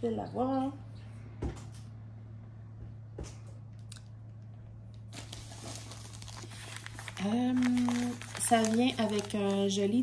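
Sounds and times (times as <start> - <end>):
plastic wrap crinkling: 5.1 - 10.0.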